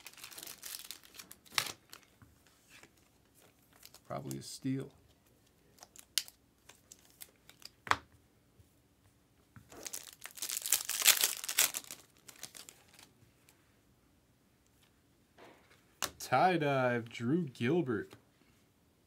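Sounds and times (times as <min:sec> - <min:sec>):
foil wrapper tearing and crinkling: 0:00.0 - 0:02.1, 0:09.8 - 0:13.1.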